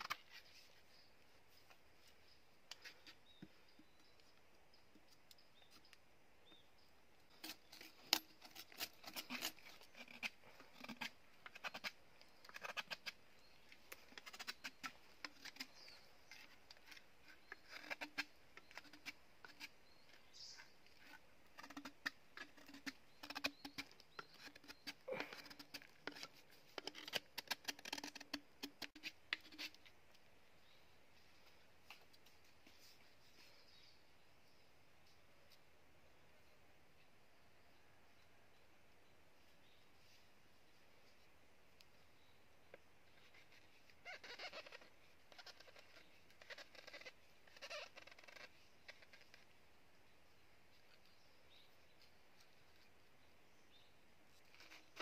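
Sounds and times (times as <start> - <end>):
knife scraping bamboo: 0.0 - 4.2, 7.3 - 30.0, 42.7 - 49.6, 50.8 - 55.0.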